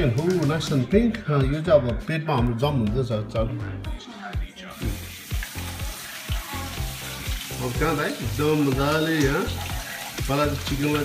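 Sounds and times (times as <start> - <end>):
tap water running: 4.7 - 11.0.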